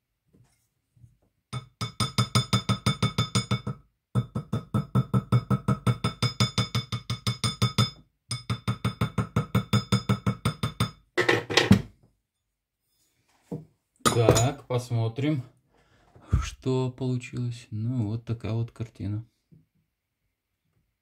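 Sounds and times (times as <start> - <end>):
small hammer tapping on metal: 1.6 - 11.0.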